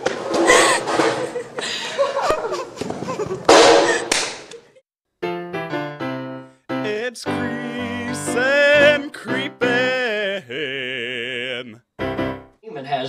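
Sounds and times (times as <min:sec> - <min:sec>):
piano chords: 0:05.2 - 0:12.6
person singing with vibrato: 0:06.8 - 0:12.4.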